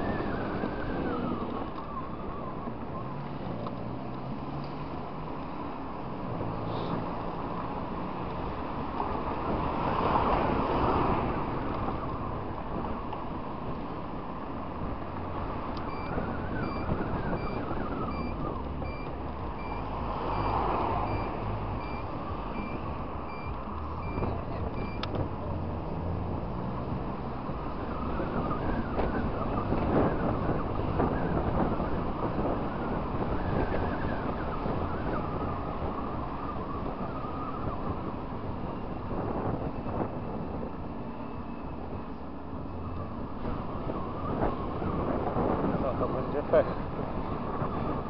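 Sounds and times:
traffic noise: 0.0 - 48.0
wind: 0.0 - 48.0
high electronic beeps: 15.9 - 25.1.

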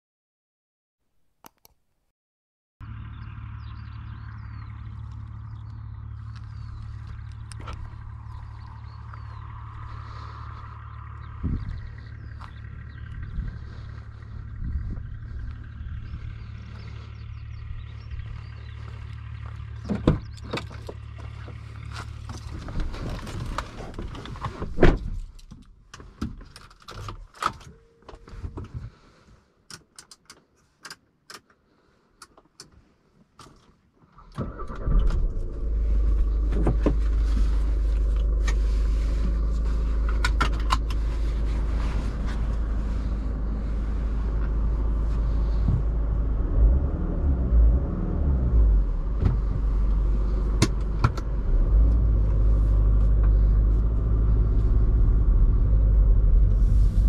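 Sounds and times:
diesel engine starting and idling: 2.8 - 23.9, 34.2 - 57.0
low hum: 2.8 - 25.4, 34.4 - 57.0.

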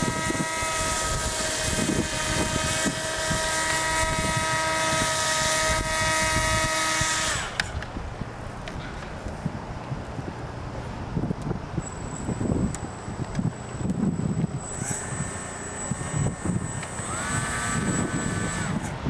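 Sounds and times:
model engine buzzing: 0.0 - 7.9, 11.8 - 19.0
wind noise on microphone: 0.0 - 19.0.

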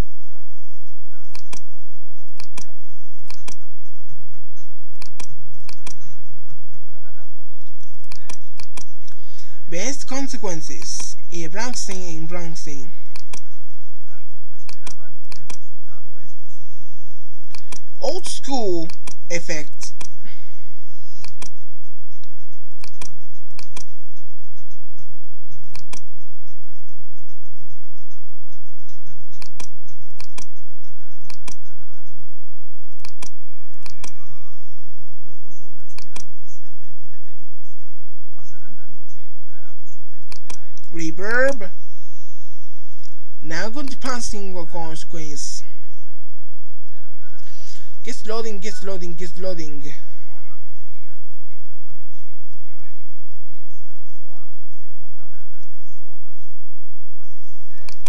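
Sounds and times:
steady low hum: 0.0 - 58.0
computer mouse clicking: 1.3 - 1.7, 2.4 - 3.6, 4.9 - 6.1, 7.6 - 9.2, 13.1 - 13.5, 14.6 - 15.6, 17.5 - 20.2, 21.2 - 21.6, 22.2 - 23.9, 25.7 - 26.1, 29.3 - 30.6, 31.2 - 31.7, 33.0 - 34.2, 35.9 - 36.3, 40.2 - 40.9.

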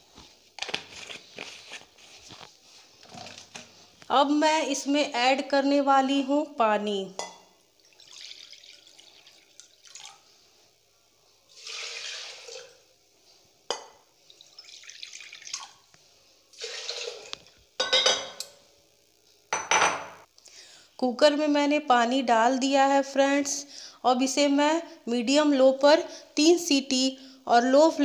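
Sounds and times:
water pouring into a pot: 7.7 - 10.3, 11.5 - 12.9, 14.2 - 15.9, 16.5 - 17.5.

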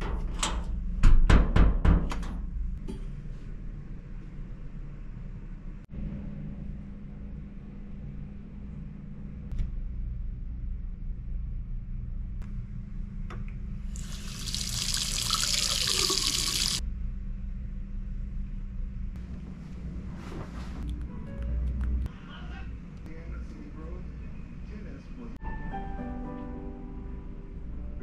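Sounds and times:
faucet running into sink: 13.9 - 16.8
faucet shut off: 14.0 - 16.8.

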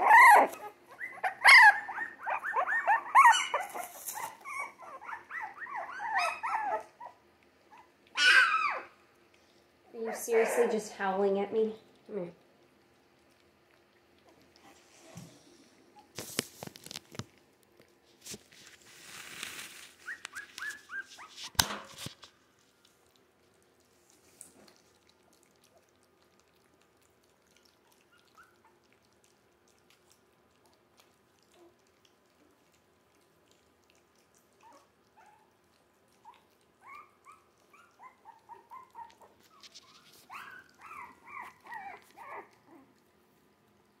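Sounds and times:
puppy whimpering: 0.0 - 9.0, 20.0 - 21.6, 27.6 - 29.1, 34.1 - 43.0.

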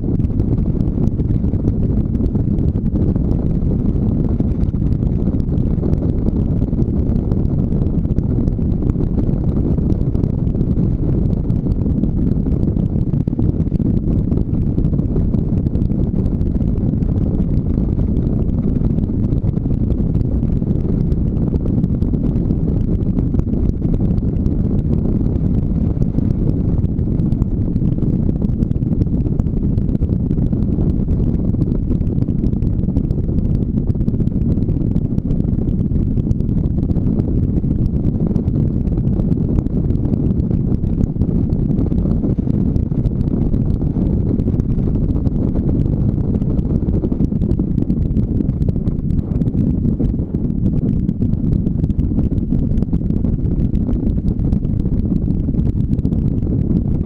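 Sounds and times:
wind buffeting microphone: 0.0 - 57.0.

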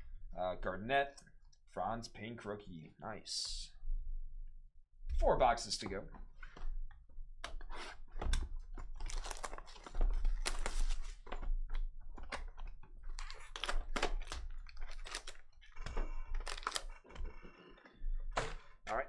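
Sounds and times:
plastic wrap crinkling and tearing: 8.9 - 11.3, 13.0 - 15.6, 16.4 - 17.1.

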